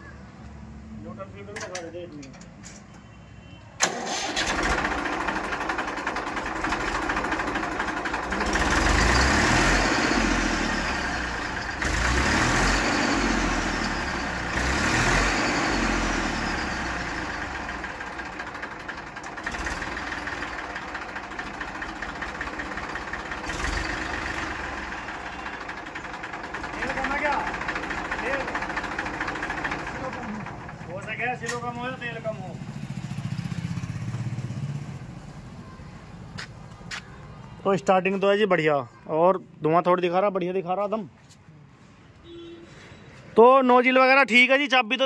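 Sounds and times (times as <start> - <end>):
tractor diesel engine revving and idling: 3.8 - 35.2.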